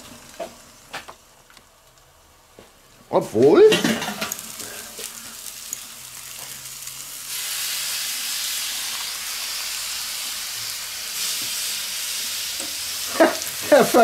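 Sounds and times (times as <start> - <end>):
food sizzling on griddle: 3.4 - 14.0.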